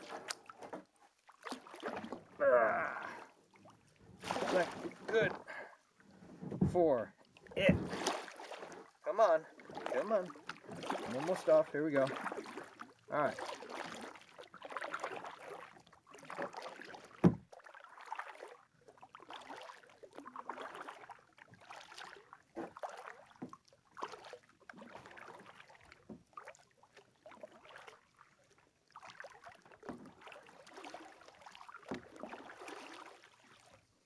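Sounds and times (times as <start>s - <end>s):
water splashing and dripping: 0.0s - 5.7s, 6.6s - 28.0s, 28.9s - 33.8s
kayak paddle strokes in water: 0.0s - 34.0s.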